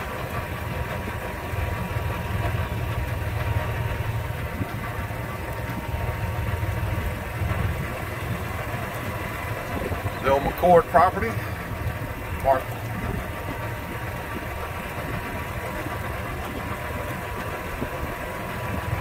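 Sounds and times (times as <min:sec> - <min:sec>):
car engine and road rumble: 0:00.0 - 0:19.0.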